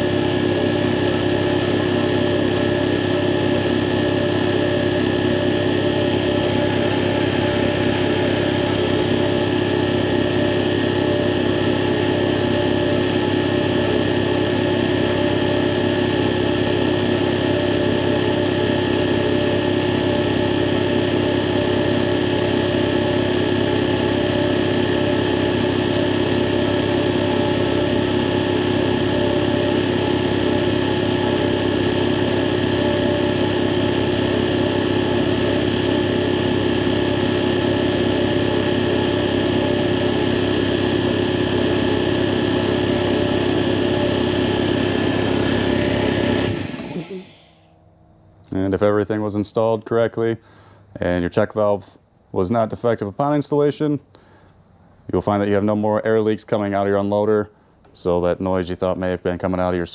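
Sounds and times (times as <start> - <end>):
air compressor running: 0.0 - 47.7.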